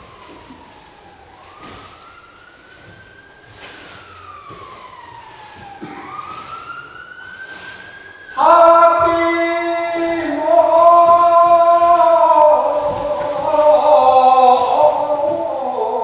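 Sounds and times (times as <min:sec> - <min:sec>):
folk singer holding long notes: 0:08.2 - 0:16.0.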